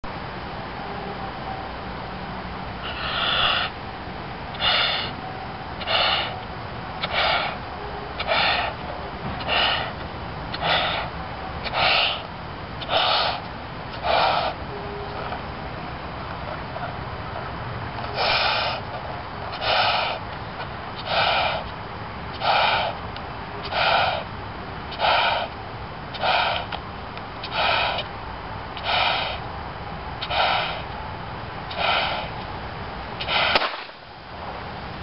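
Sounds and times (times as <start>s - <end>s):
breaths inflating a balloon: 2.8s - 3.7s, 4.6s - 5.2s, 5.8s - 6.4s, 7.0s - 7.6s, 8.2s - 8.8s, 9.4s - 13.4s, 14.0s - 14.6s, 18.1s - 18.9s, 19.5s - 20.2s, 21.0s - 21.7s, 22.4s - 23.0s, 23.6s - 24.3s, 24.9s - 25.5s, 26.1s - 26.8s, 27.4s - 28.1s, 28.8s - 29.4s, 30.2s - 30.9s, 31.7s - 32.4s, 33.2s - 33.7s.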